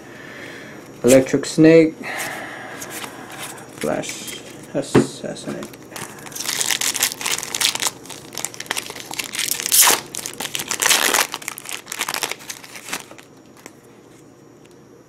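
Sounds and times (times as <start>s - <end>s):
foil wrapper tearing and crinkling: 5.6s - 13.8s.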